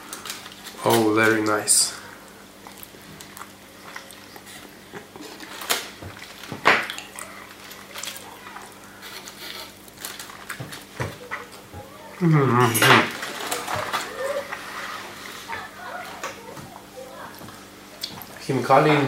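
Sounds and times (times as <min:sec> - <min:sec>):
foil crinkling: 0:05.2 - 0:11.6, 0:13.0 - 0:15.7
fork scraping foil tray: 0:08.9 - 0:10.3.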